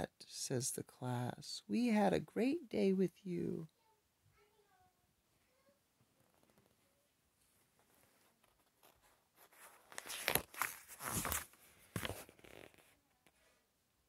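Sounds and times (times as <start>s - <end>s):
book page turning: 7.8s - 13.0s.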